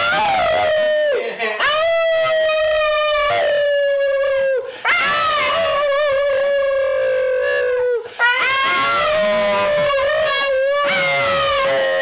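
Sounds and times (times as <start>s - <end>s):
dog howling: 0.0s - 12.0s.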